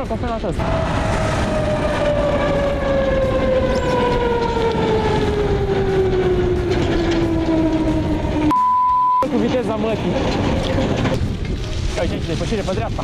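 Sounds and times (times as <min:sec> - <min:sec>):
wind and road noise: 0:00.0 - 0:08.5, 0:09.2 - 0:13.0
truck engine drone passing: 0:00.6 - 0:08.5.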